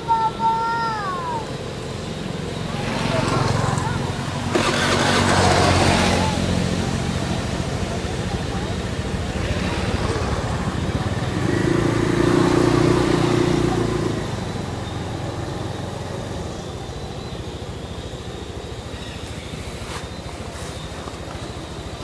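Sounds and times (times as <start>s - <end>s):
vehicle engine passing: 1.5s - 22.0s.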